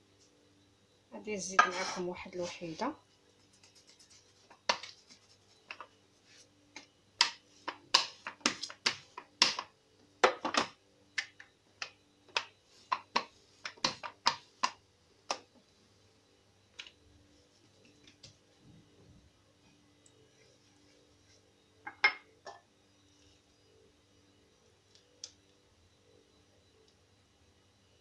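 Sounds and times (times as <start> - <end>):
hands working dough: 1.6 - 9.7, 10.3 - 15.6
rolling pin clicking on marble: 7.2 - 9.7.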